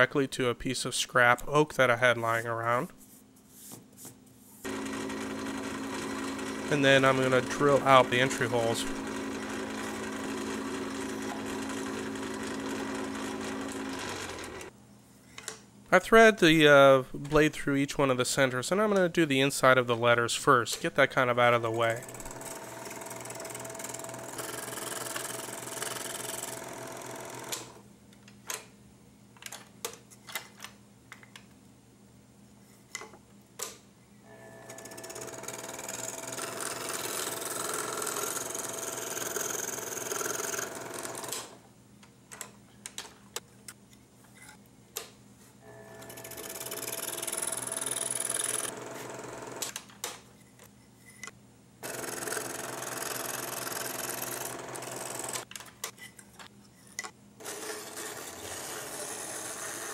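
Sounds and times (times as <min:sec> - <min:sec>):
scroll saw cutting wood: 0:04.6 - 0:14.7, 0:21.7 - 0:27.8, 0:34.8 - 0:41.6, 0:46.0 - 0:49.7, 0:51.8 - 0:55.5, 0:57.4 - 0:59.9.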